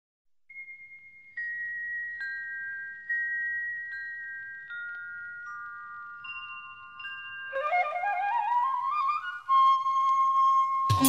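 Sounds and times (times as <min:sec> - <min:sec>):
chime-like bell tones: 0:00.5 - 0:08.0.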